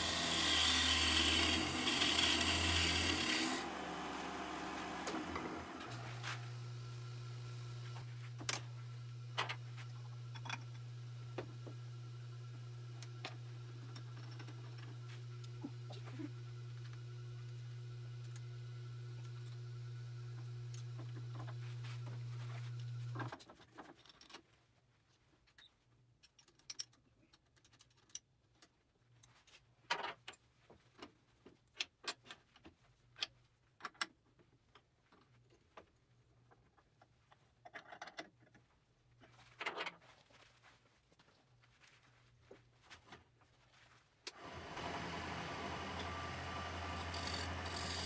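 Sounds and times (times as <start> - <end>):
electric machine hum: 0.0 - 23.2, 44.3 - 48.0.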